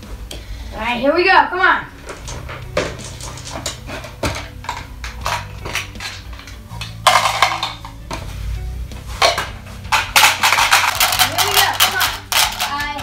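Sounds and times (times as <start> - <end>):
dice clicking and clattering: 2.1 - 8.0, 9.2 - 13.0.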